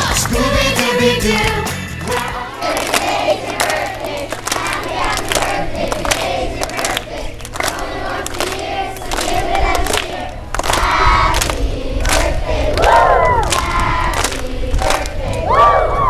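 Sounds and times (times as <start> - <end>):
hand claps: 0.0 - 15.2
children cheering and shouting: 12.8 - 13.6, 15.4 - 16.0.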